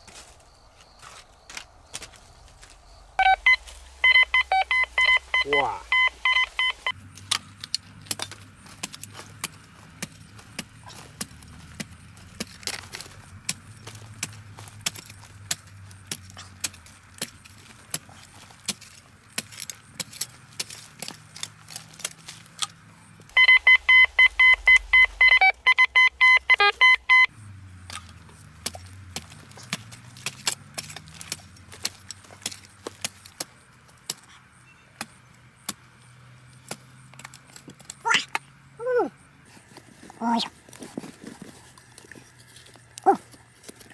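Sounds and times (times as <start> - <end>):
metal detector pulsed beeping: 3.2 - 7.0, 23.3 - 27.3
spade chopping into stony soil: 27.9 - 34.3.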